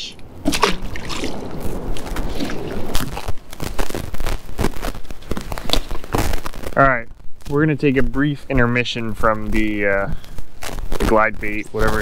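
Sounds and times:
water splashing against kayak: 0.3 - 4.0.

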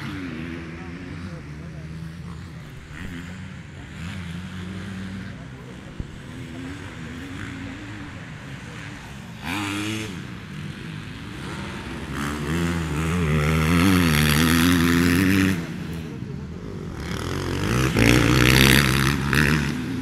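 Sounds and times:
motocross bike engine revving: 0.0 - 20.0.

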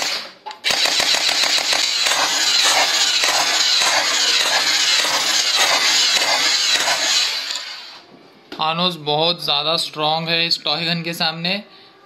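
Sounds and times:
toy blaster rapid fire: 0.0 - 8.0.

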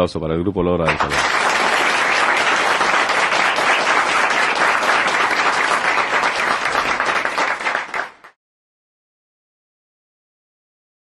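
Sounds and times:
audience applauding: 0.9 - 8.4.

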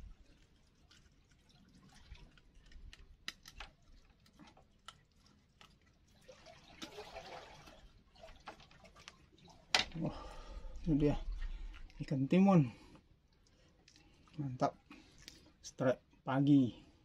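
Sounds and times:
wet handling of fish: 0.0 - 16.2
small clicks and taps: 2.6 - 3.8.

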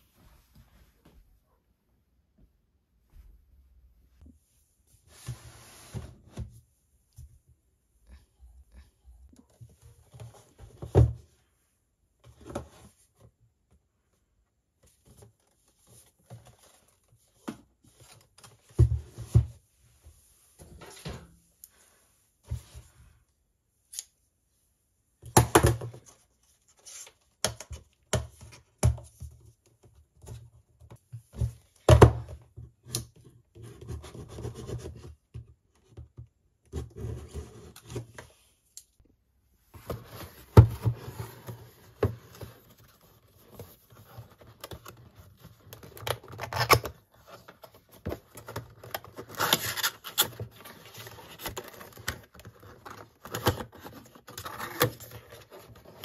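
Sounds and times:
cardboard rustling and scraping: 36.8 - 38.5, 39.7 - 56.0.

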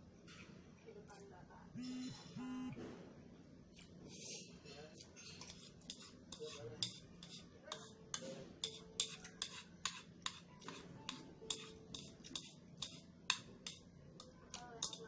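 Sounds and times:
chopsticks clicking on a bowl: 11.5 - 15.0.

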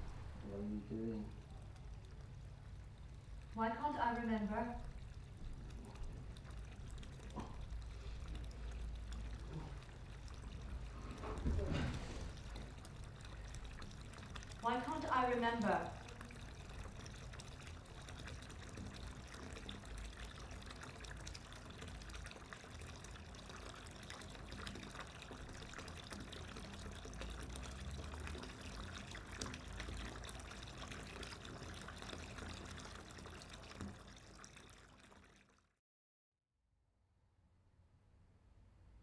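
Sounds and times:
low rumble: 0.0 - 1.7
rushing trickling water: 0.0 - 35.8.

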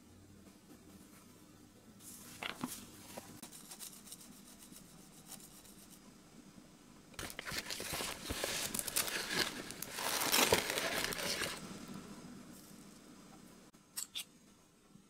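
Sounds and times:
rustling and crinkling: 2.0 - 4.7, 7.2 - 11.7
flour sifting through sieve: 2.0 - 6.0, 7.2 - 11.8.

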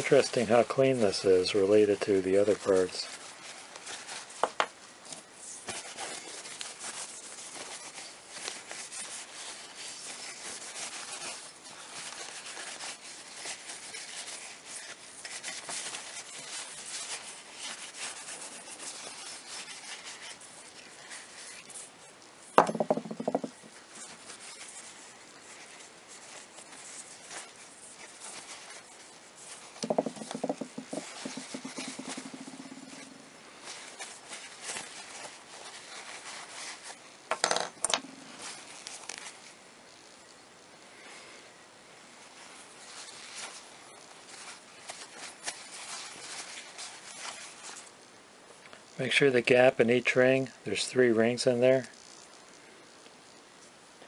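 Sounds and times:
paper towel scrubbing metal: 5.6 - 22.0, 24.0 - 37.0.

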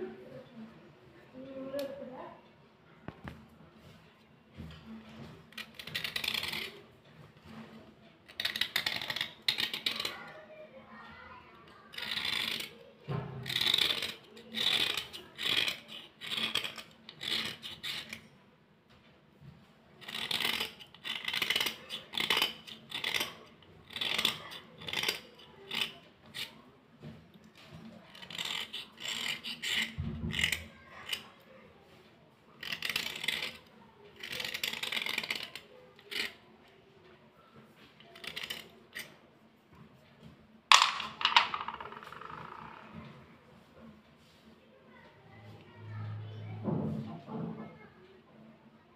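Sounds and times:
metal blade scraping slate pencils: 5.5 - 6.8, 8.3 - 10.4, 11.9 - 18.4, 20.0 - 26.6, 27.8 - 31.4, 32.6 - 36.4, 38.1 - 39.2.

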